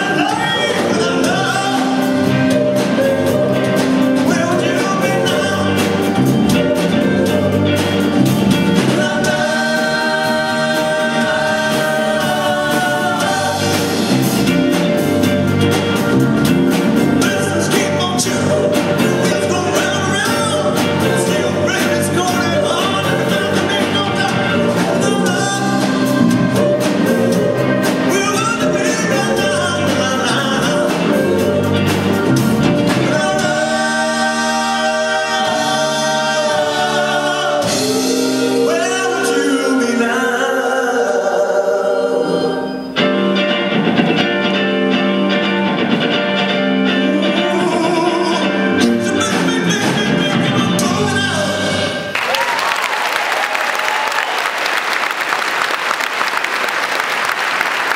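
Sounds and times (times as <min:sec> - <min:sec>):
man singing: 0:00.0 - 0:14.2, 0:17.0 - 0:41.9, 0:46.8 - 0:52.1
electric guitar: 0:00.0 - 0:34.6, 0:42.3 - 0:52.2
drums: 0:00.0 - 0:41.2, 0:42.9 - 0:57.9
keyboards: 0:00.0 - 0:52.1.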